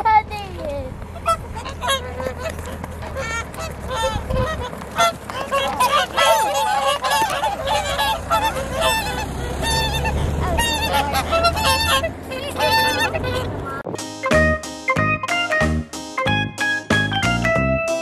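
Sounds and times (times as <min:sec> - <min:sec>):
swans honking: 0:00.9 - 0:15.1.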